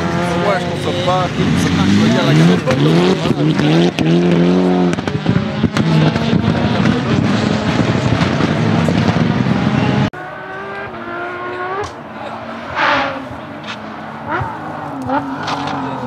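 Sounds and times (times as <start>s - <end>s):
distant rally car revving: 0.0s - 16.0s
rally car engine accelerating: 0.0s - 16.0s
engine pops and crackles: 4.8s - 9.4s.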